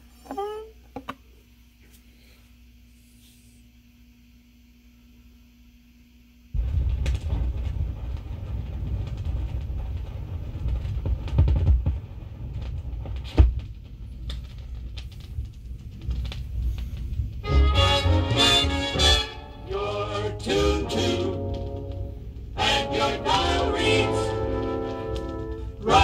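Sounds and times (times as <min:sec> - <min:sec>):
low turntable rumble: 0:06.6 - 0:26.0
record surface crackle and pops: 0:06.6 - 0:26.0.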